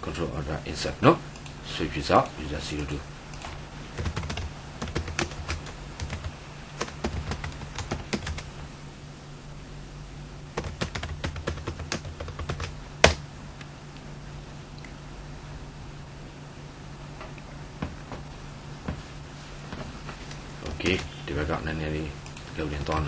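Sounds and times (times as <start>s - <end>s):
low steady hum: 0.0s - 23.0s
keyboard typing: 2.8s - 8.5s, 10.6s - 13.2s, 20.6s - 21.1s.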